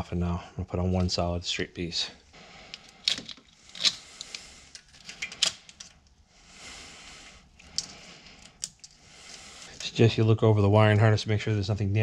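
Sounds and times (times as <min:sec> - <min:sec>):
brittle plastic clicking and crackling: 0:02.7 - 0:06.2, 0:07.6 - 0:09.0.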